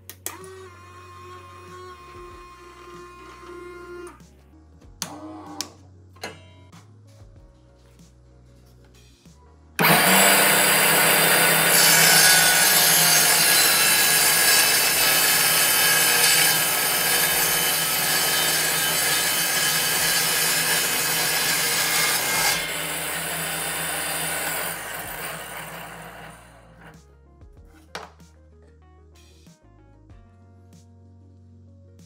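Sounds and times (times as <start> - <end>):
table saw cutting plywood: 0.4 - 4.2, 9.8 - 27.0.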